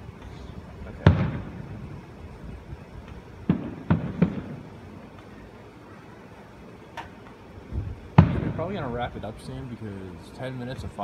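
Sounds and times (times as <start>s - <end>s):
distant fireworks bursting: 0.0s - 5.9s, 6.7s - 9.4s.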